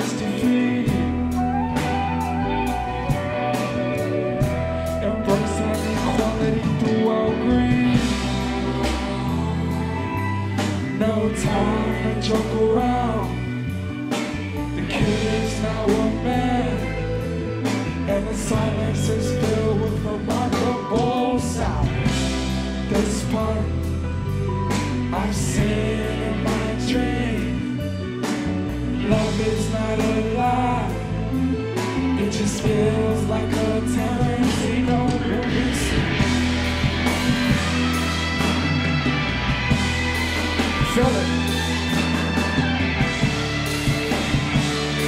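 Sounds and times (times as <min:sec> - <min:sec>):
person singing into microphone: 0:00.0 - 0:13.7, 0:14.8 - 0:24.0, 0:24.7 - 0:28.0, 0:28.9 - 0:36.2
deep bass line: 0:00.0 - 0:45.0
drums: 0:00.0 - 0:45.0
keyboards: 0:00.0 - 0:45.0.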